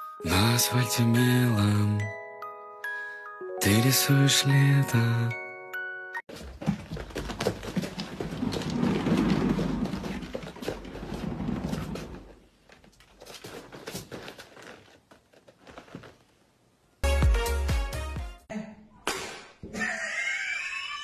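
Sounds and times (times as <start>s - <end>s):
cat paws pattering and thumping: 6.3s - 11.2s.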